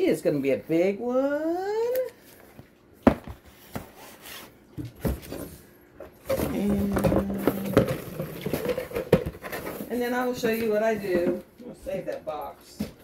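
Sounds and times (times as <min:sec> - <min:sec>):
cardboard boxes knocking and scraping: 0:06.2 - 0:11.3.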